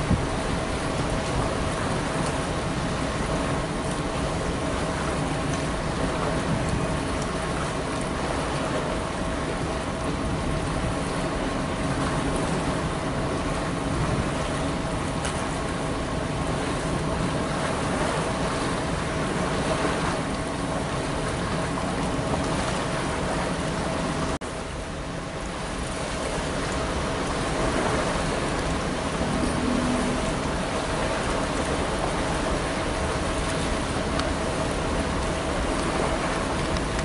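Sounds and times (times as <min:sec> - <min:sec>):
gusty wind buffeting microphone: 0:00.0 - 0:03.8, 0:26.4 - 0:37.0
faint steady hum: 0:00.0 - 0:37.0.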